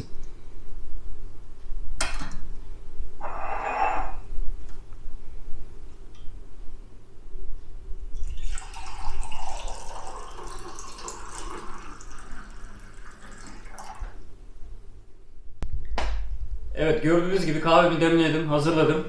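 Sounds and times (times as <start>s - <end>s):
coffee pouring into a mug: 8.2s - 14.2s.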